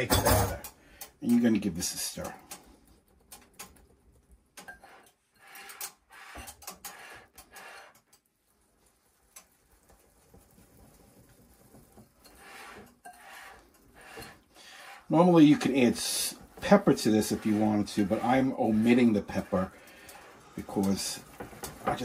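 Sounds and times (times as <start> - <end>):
whisk scraping glass bowl: 4.6 - 22.0.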